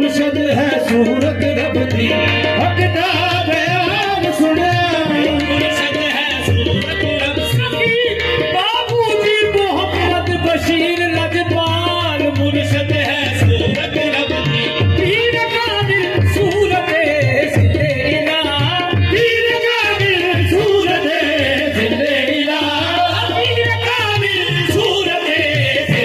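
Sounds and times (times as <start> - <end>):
harmoniums: 0.0 - 26.0
lead voices singing: 13.0 - 26.0.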